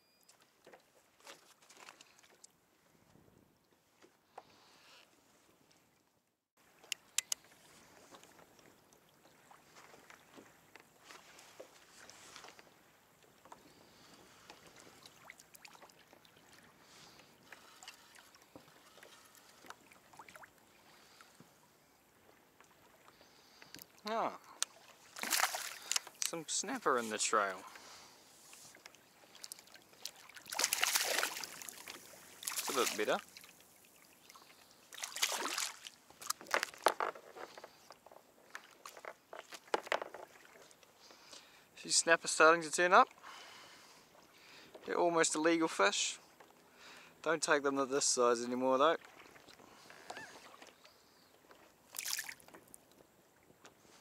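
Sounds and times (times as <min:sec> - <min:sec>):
water lapping against a hull: 0:00.5 - 0:41.6, 0:43.0 - 0:45.0, 0:48.8 - 0:54.0
small water drips and plops: 0:14.4 - 0:21.3, 0:22.6 - 0:26.4, 0:28.7 - 0:36.9, 0:51.9 - 0:53.0
fish splashing at the surface: 0:24.7 - 0:26.0, 0:29.3 - 0:33.6, 0:35.0 - 0:36.0, 0:51.9 - 0:52.4.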